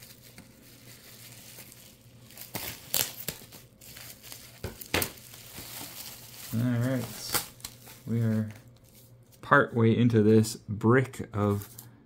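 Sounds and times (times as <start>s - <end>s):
bubble wrap crinkling and tearing: 0.0s - 9.5s.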